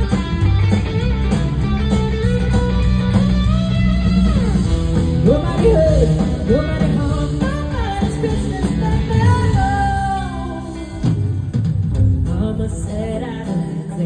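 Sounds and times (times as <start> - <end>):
live band with guitar: 0.0 - 14.0
woman singing lead vocal: 5.2 - 11.2, 12.2 - 14.0.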